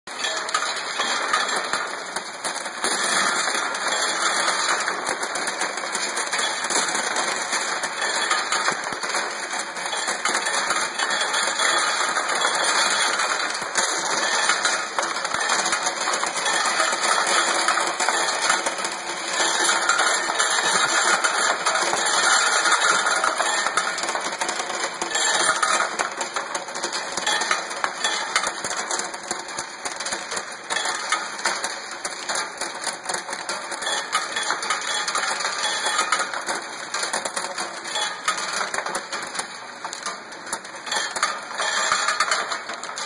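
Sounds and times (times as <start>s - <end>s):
metal rings clattering in feeder: 40.9s - 43.0s.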